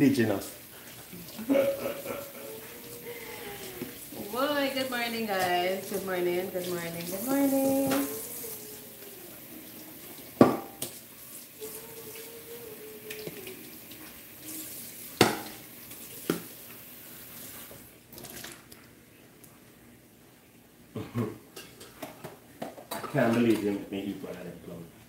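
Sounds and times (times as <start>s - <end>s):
running tap water: 0.0s - 18.8s
dishes clanking in a sink: 10.4s - 10.9s, 15.2s - 15.6s, 21.0s - 23.8s.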